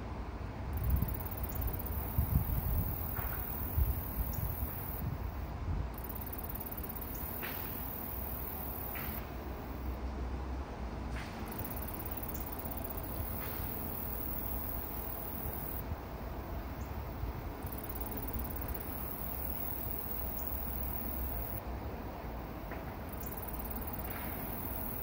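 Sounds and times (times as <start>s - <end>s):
even hiss: 11.4s - 15.9s.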